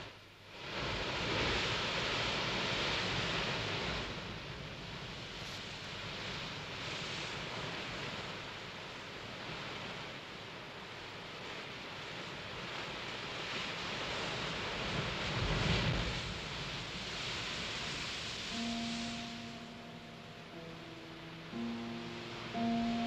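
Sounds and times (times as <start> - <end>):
sea surf breaking: 0.6 - 8.5, 13.2 - 23.0.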